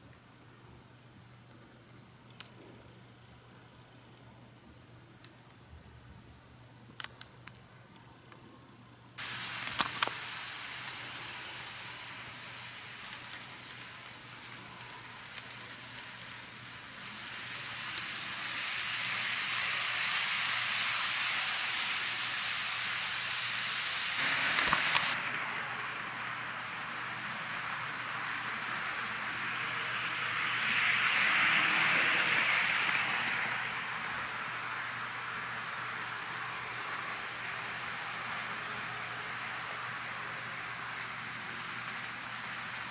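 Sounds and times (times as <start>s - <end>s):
model train wheels and motors hissing: 0.0s - 42.9s.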